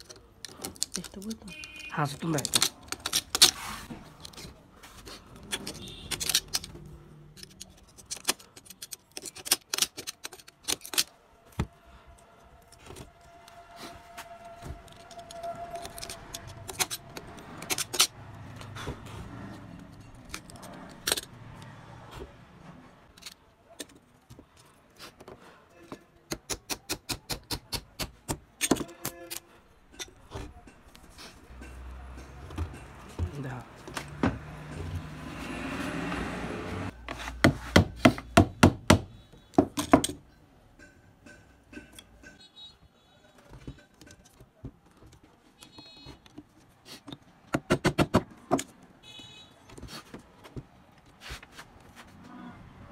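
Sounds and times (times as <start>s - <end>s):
metallic clicks and scrapes: 0.0s - 21.9s, 22.9s - 25.4s, 26.3s - 36.0s
scratchy rustling of copper windings: 12.2s - 18.7s.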